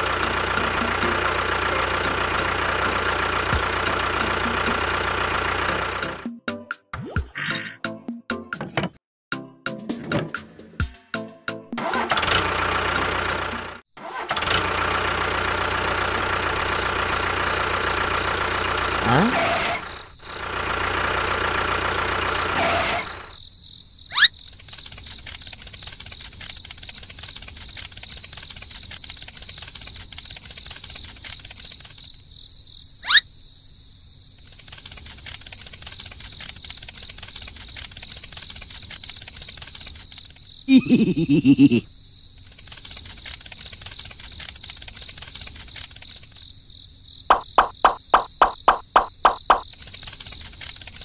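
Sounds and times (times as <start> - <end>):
small motor running: 0.0 - 6.2, 24.5 - 32.1, 34.4 - 41.8, 42.4 - 46.4, 47.3 - 51.0
high insect buzz: 23.3 - 51.0
quick run of clicks: 24.3 - 32.2, 34.4 - 40.6, 42.4 - 46.5, 47.3 - 51.0.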